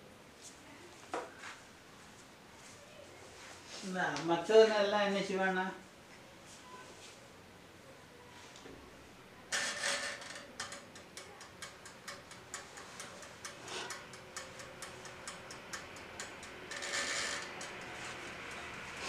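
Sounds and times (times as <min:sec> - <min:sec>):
clockwork timer ticking rapidly: 0:10.7 - 0:19.0.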